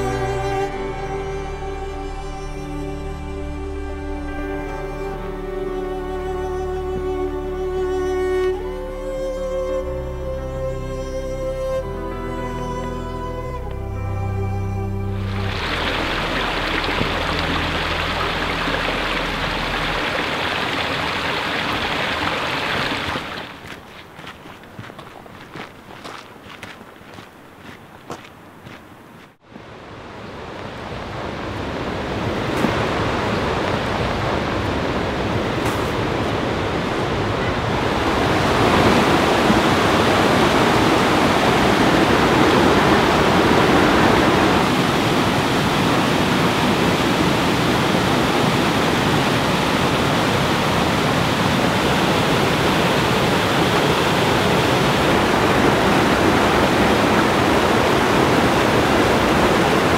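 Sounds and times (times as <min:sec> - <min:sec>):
water rushing over boulders: 0:15.2 - 0:26.2, 0:29.5 - 0:59.9.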